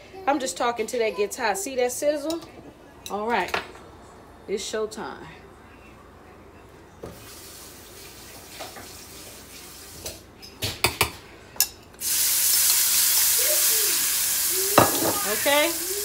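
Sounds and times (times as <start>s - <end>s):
grease sizzling in frying pan: 12.0s - 16.0s
vegetables sizzling loudly: 12.0s - 16.0s
utensils clinking: 14.6s - 15.7s.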